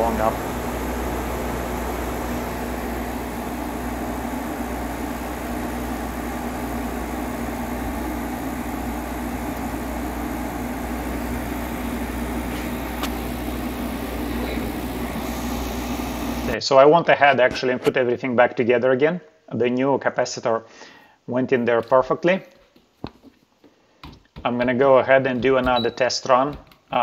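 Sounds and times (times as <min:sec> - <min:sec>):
air conditioner fan blowing: 0:00.0 - 0:16.6
low compressor hum: 0:00.0 - 0:16.6.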